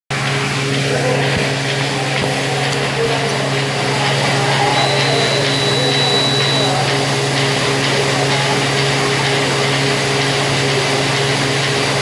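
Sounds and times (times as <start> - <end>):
factory machinery humming: 0.1 - 12.0
thin high whine: 3.9 - 7.0.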